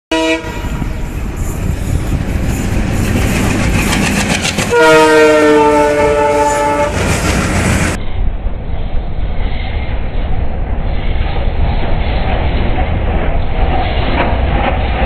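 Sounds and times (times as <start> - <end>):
locomotive horn blast: 0.1 - 1.2, 4.6 - 7.5
diesel locomotive engines: 0.1 - 15.0
wheels clattering on rail joints: 0.9 - 4.8.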